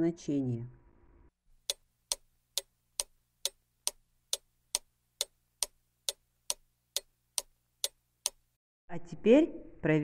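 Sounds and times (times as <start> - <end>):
clock ticking: 1.6 - 8.6.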